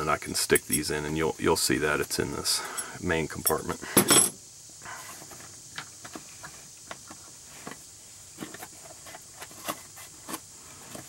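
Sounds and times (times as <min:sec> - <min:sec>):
metal tools clattering: 0:02.6 - 0:04.4.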